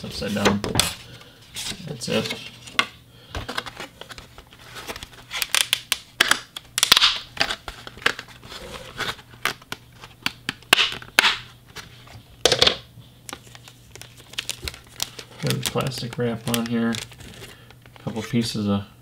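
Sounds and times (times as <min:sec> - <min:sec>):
plastic cover clicking and scraping: 0:01.6 - 0:18.2
plastic wrap crackling: 0:13.3 - 0:18.3.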